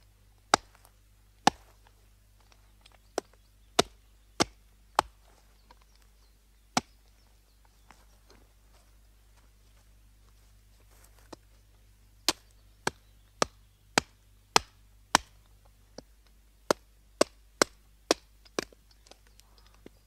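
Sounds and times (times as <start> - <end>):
axe chopping wood: 0.5 - 0.8, 1.4 - 1.6, 3.2 - 5.2, 6.7 - 7.0, 12.3 - 15.4, 16.7 - 18.8.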